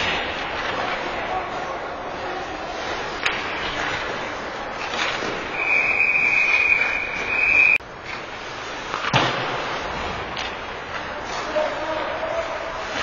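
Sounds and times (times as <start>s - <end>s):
referee's whistle long shrill blast: 5.6s - 7.8s.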